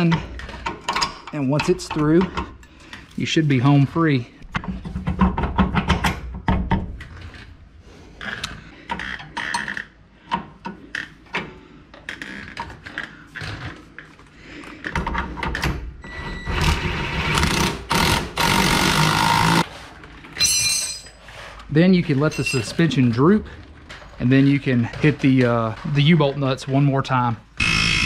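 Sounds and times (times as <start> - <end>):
wrench and bolt clinking on metal: 0.0 - 2.8, 20.3 - 21.3, 22.2 - 26.6.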